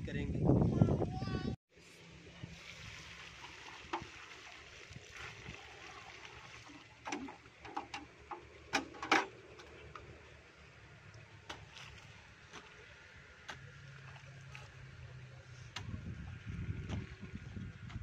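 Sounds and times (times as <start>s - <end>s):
water splashing onto earth: 2.5s - 7.7s.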